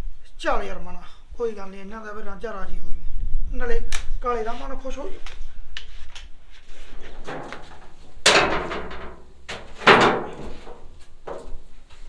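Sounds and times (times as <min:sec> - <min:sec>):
loud ringing bangs: 0:07.2 - 0:10.9.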